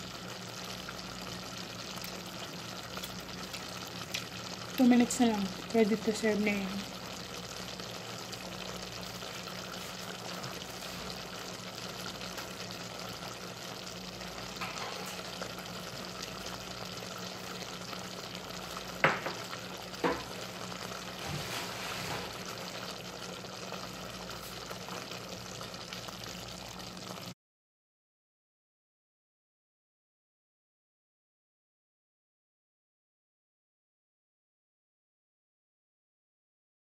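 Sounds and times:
stew simmering in a pot: 0:00.0 - 0:27.4.

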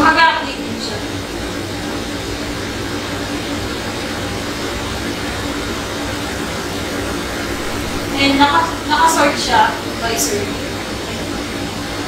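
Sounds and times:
steady hiss: 0:00.8 - 0:12.0
low hum: 0:03.8 - 0:10.0.

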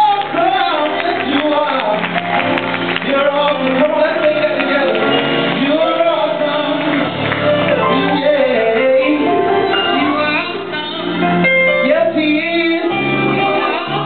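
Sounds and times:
instrumental accompaniment: 0:00.0 - 0:14.0
youth choir singing gospel: 0:07.9 - 0:14.0.

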